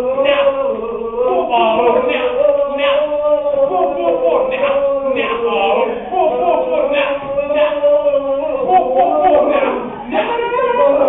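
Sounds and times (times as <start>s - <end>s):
boys singing a cappella: 0.0s - 11.0s.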